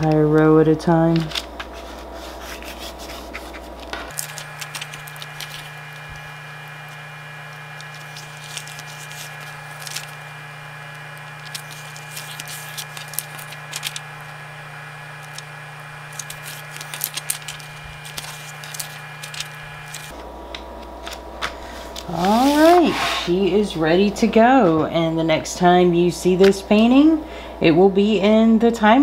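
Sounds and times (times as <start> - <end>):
paper and film rustling: 0.0 - 20.2
steady hum: 0.0 - 29.0.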